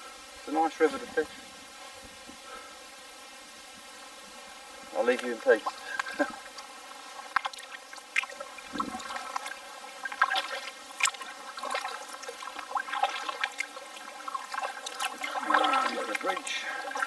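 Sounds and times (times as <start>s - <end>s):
paddle splashing in water: 7.2s - 17.0s.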